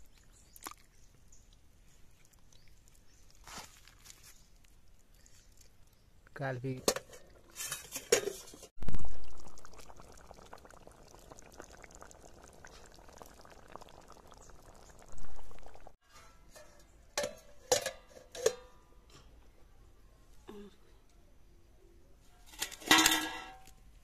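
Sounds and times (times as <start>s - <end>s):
liquid bubbling in a pot: 7.1s - 16.0s.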